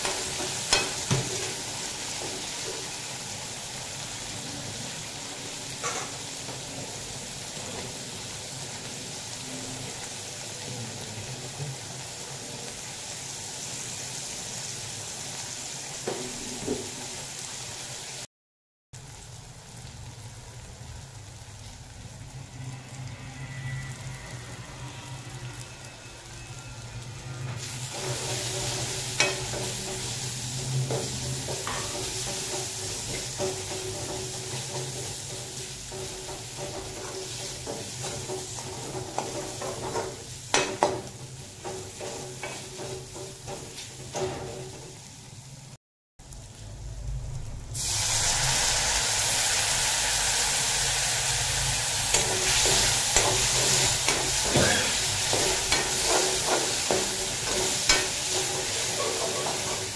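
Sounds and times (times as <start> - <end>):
spices sizzling in oil: 0.0 - 18.3, 19.0 - 59.9
metal spatula scraping pan: 22.5 - 44.8, 52.1 - 59.9.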